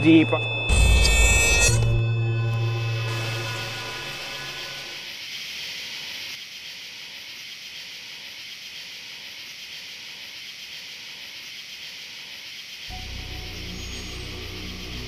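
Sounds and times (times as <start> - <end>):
steady hiss: 2.9 - 15.0.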